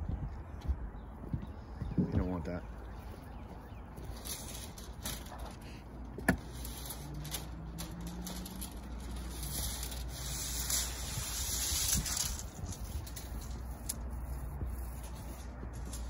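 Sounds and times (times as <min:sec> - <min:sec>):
paint roller hissing: 0:06.4 - 0:16.0.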